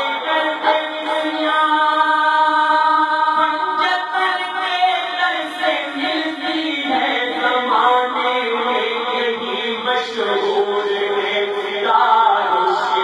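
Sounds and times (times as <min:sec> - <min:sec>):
men singing devotional song: 0:00.0 - 0:13.0.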